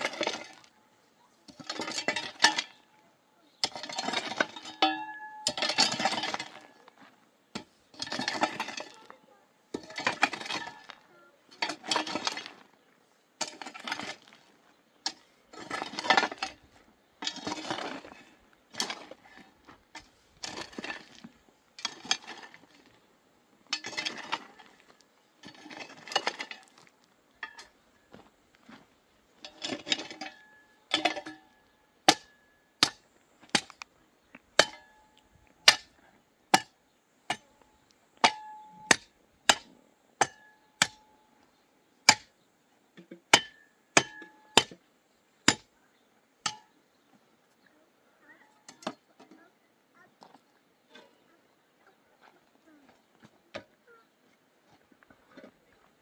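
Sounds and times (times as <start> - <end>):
hoe scraping stony soil: 0.0 - 36.7, 37.3 - 42.3, 50.1 - 51.4, 52.6 - 56.0
iron bar clinking into ground: 3.6 - 6.7, 23.7 - 24.6, 27.4 - 27.8, 29.4 - 33.8, 34.6 - 37.6, 38.2 - 41.2, 43.0 - 44.8, 46.4 - 46.8.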